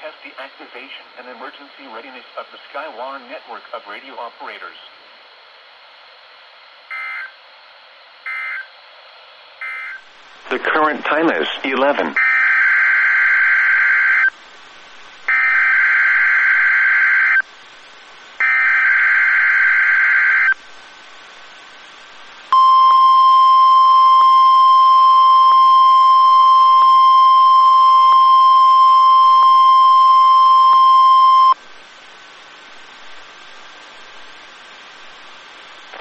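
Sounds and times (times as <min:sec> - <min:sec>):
steady alarm tone: 0:06.9 - 0:07.4, 0:08.2 - 0:08.7, 0:09.6 - 0:10.1, 0:12.2 - 0:14.3, 0:15.3 - 0:17.4, 0:18.4 - 0:20.6, 0:22.5 - 0:31.6.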